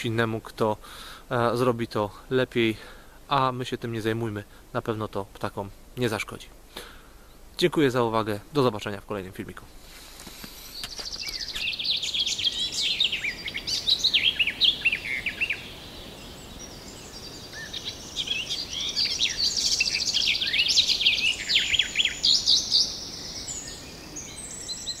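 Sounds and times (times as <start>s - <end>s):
songbirds singing and chirping: 10.3s - 25.0s.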